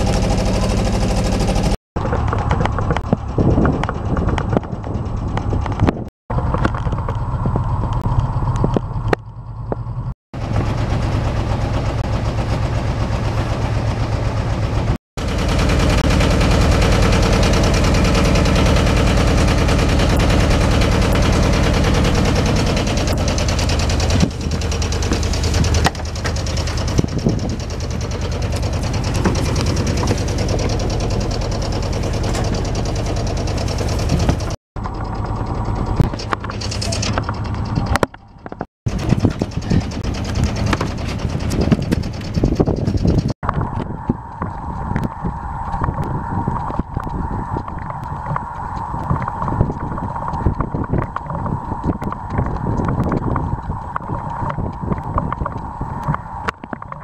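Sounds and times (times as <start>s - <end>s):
boat engine throbbing: 0.0s - 57.0s.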